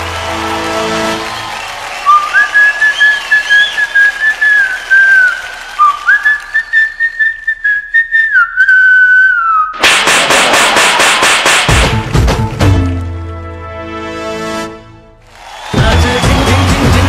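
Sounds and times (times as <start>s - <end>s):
whistled tune: 0.0s - 9.8s
fast percussion beat: 9.8s - 12.9s, 15.7s - 17.0s.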